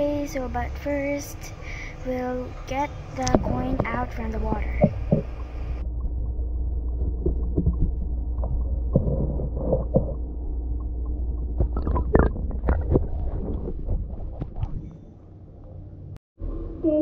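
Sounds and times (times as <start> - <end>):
underwater knocks and clicks: 3.2 - 14.8
muffled underwater rumble: 3.2 - 17.0.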